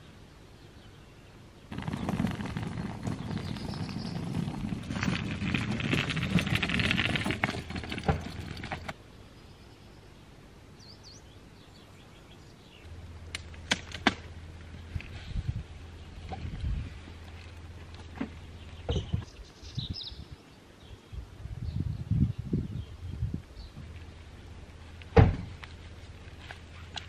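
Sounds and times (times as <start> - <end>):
suitcase wheels rolling on gravel: 1.7 - 9.0, 13.6 - 19.0.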